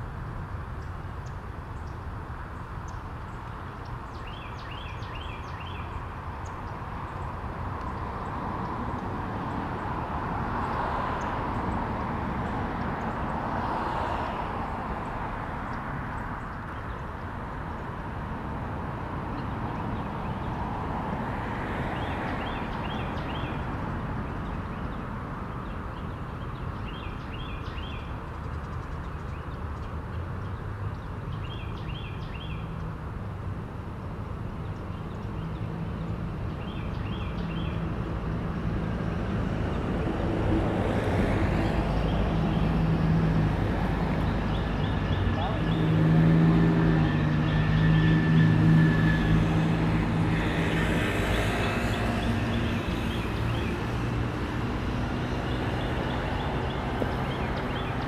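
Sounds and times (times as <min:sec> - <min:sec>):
road traffic rumble: 0:00.0 - 0:58.0
vehicle approaching: 0:32.7 - 0:58.0.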